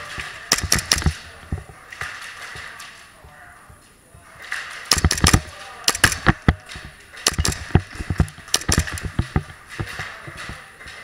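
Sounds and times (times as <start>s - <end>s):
airsoft gunfire: 0.1s - 1.4s, 4.9s - 10.0s.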